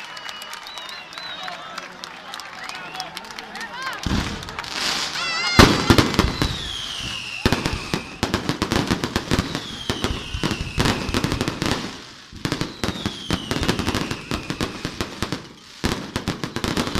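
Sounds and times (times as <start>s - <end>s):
fireworks bangs and crackling: 4.0s - 16.9s
fireworks whistles: 4.0s - 16.9s.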